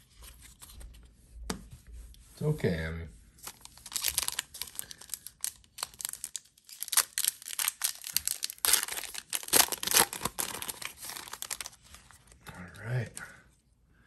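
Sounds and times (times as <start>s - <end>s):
foil wrapper crinkling: 3.4s - 12.4s.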